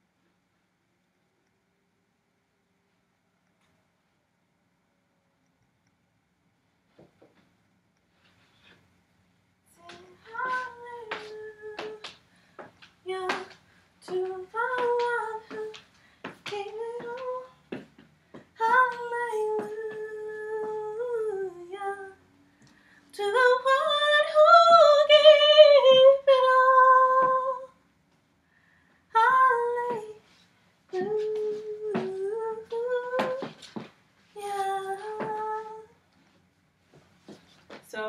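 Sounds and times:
woman singing unaccompanied: 9.7 - 12.2, 13.0 - 15.8, 16.4 - 17.8, 18.6 - 22.2, 23.1 - 27.8, 29.2 - 30.2, 30.9 - 33.6, 34.3 - 36.0.

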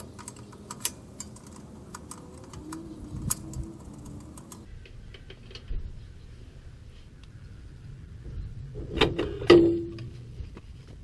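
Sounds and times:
wrench metallic clicks: 0.0 - 4.7.

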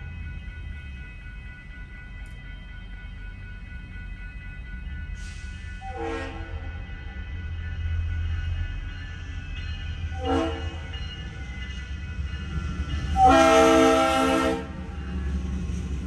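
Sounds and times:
train rumble: 0.0 - 16.0
locomotive air horn blasts: 5.8 - 6.6, 10.2 - 10.8, 13.2 - 14.8.

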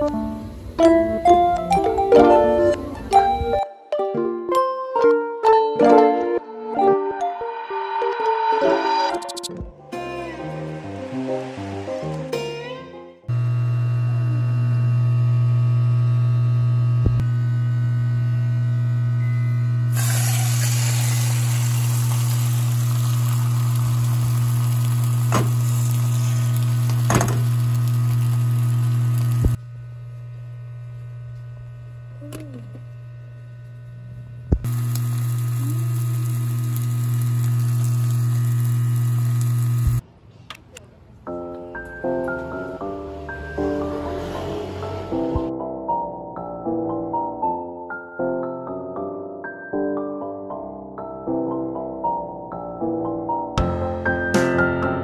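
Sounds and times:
low electrical hum: 13.3 - 40.0
tofu sizzling in frying pan: 20.0 - 29.5, 34.7 - 39.9.

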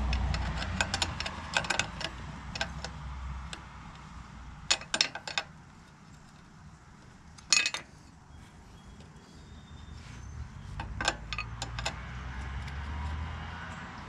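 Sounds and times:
metallic clicks of nut threading: 0.0 - 4.1, 4.7 - 7.9, 10.7 - 12.0.

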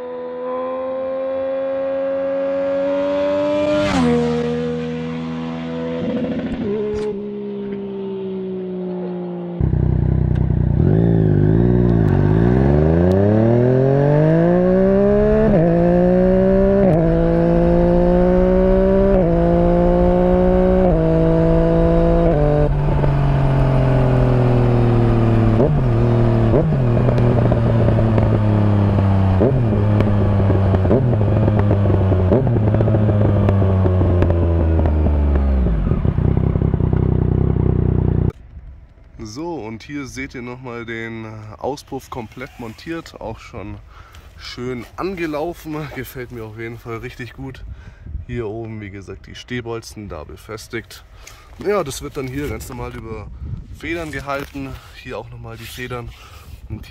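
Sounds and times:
motorcycle engine revving through gears: 0.0 - 38.4.

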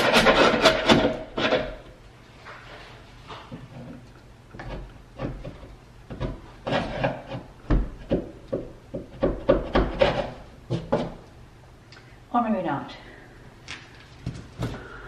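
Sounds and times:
chisel scraping paint off wood: 4.6 - 11.2.

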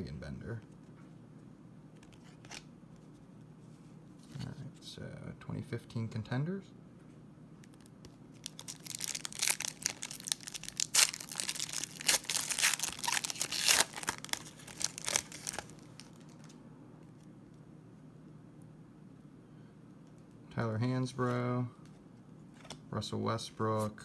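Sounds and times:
foil wrapper tearing and crinkling: 7.8 - 16.5.

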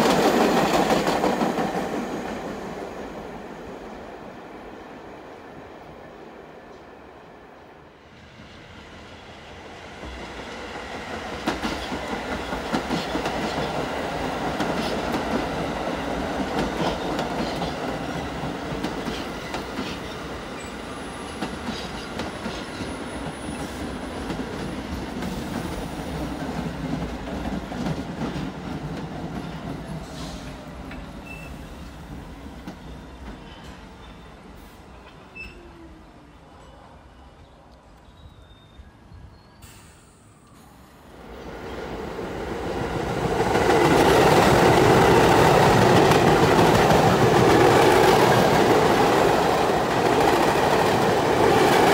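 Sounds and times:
subway train rumbling past: 0.0 - 51.9
faint falling squeal: 35.1 - 40.9.

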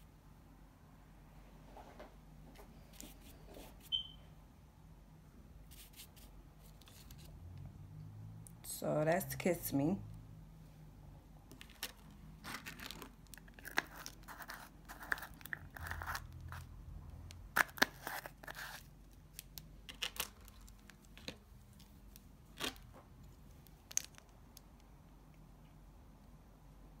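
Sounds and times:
rustling and scraping: 1.6 - 4.0, 5.7 - 7.4, 11.5 - 16.8
plastic items clicking and tapping: 23.6 - 24.8.

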